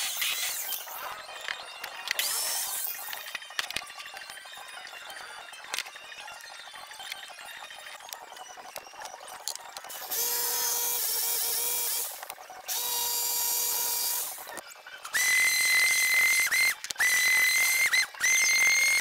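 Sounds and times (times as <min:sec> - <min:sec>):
higher-pitched power tool whine: 0:09.9 - 0:19.0.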